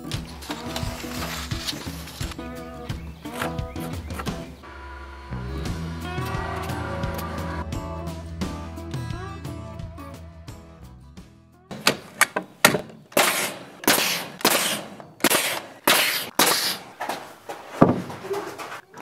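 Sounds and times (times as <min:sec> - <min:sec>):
nail gun firing into wood: 0:11.7 - 0:16.8.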